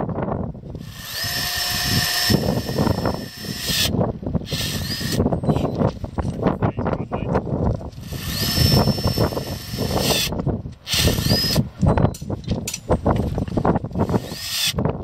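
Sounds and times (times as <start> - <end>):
power wrench whining: 0.8 - 5.8, 8.0 - 12.2, 12.8 - 14.9.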